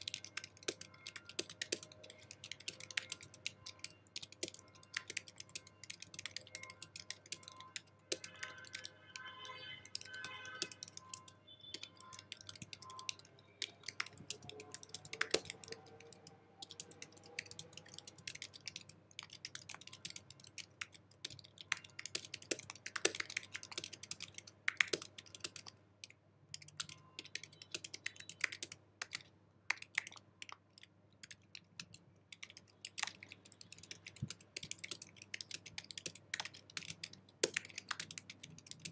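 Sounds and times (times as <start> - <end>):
fast typing on keyboard: 0.0 - 38.9.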